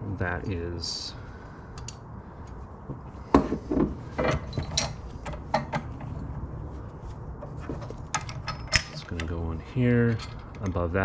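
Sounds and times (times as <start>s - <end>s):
metal parts clinking: 4.2s - 6.0s, 7.7s - 11.0s.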